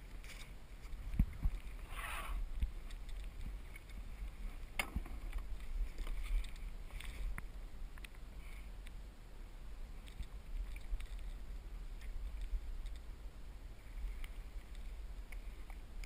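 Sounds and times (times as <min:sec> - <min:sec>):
wind rumble on microphone: 0:00.0 - 0:16.0
water splashing around kayak: 0:09.9 - 0:16.0.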